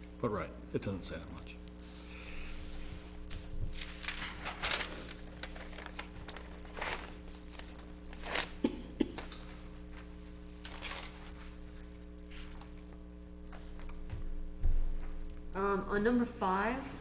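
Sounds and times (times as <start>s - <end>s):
electrical hum: 0.0s - 17.0s
paper rustling: 3.0s - 8.6s, 9.9s - 12.8s.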